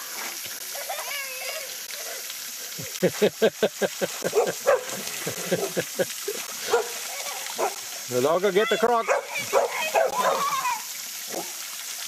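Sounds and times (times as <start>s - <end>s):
dog barking excitedly: 4.3s - 5.8s, 6.6s - 7.8s, 9.0s - 11.6s.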